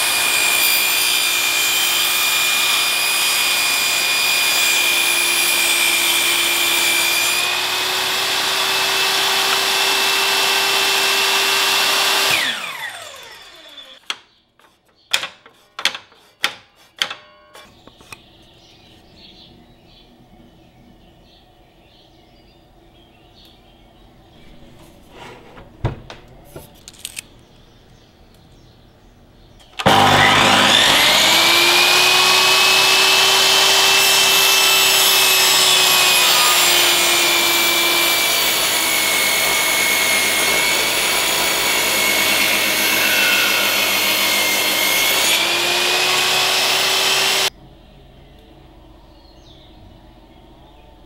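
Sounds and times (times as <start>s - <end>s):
table saw cutting wood: 0.0s - 14.1s, 29.8s - 47.5s.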